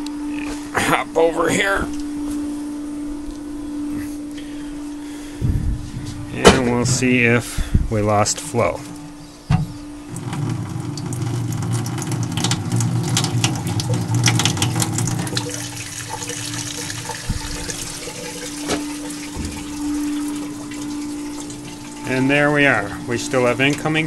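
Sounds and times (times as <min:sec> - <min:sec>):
steady low hum: 0:00.0 - 0:24.0
water running from faucet: 0:10.1 - 0:23.9.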